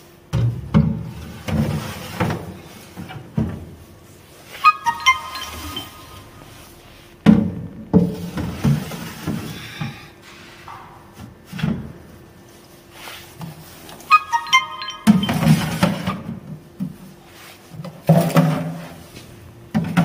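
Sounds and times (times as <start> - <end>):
bell-like chime notes: 4.6 - 7.0, 14.1 - 16.0.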